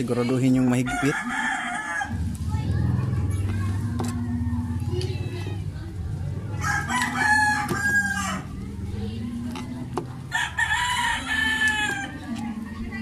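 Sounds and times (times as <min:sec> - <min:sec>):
rooster crowing: 0:00.9 - 0:02.2, 0:06.5 - 0:08.5, 0:10.3 - 0:12.3
low hum: 0:01.5 - 0:13.0.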